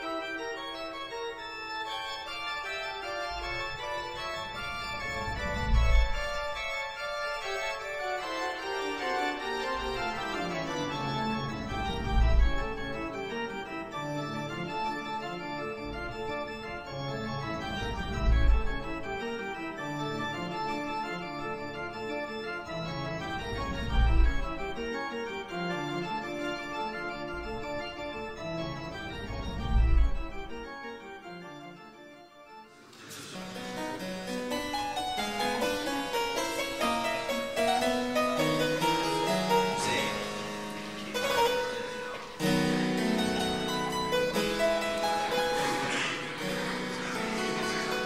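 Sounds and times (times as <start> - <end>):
organ chords: 0.0 - 48.0.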